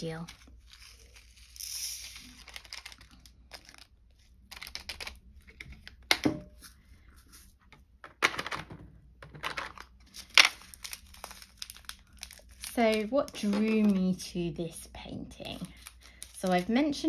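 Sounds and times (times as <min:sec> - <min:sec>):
plastic zip bags crinkling: 0:02.2 - 0:05.2, 0:09.5 - 0:14.3, 0:15.4 - 0:17.0
plastic pots clicking and clacking: 0:08.0 - 0:09.9.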